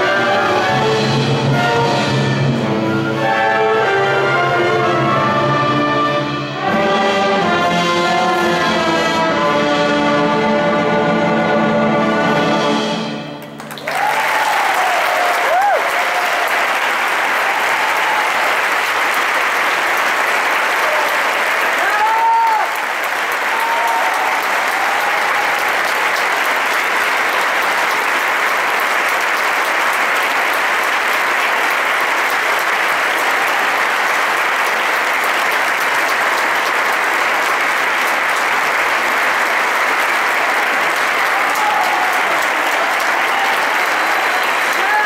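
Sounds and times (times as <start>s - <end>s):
audience applauding: 13.4s - 45.0s.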